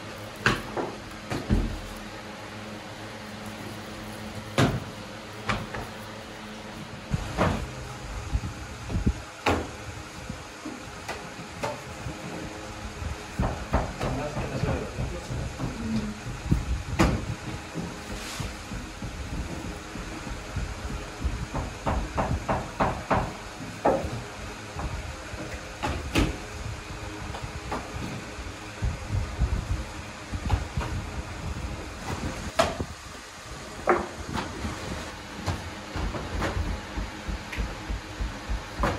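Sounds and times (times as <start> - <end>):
steady low hum: 0.0 - 38.9
hand brush brushing dough: 18.0 - 18.9.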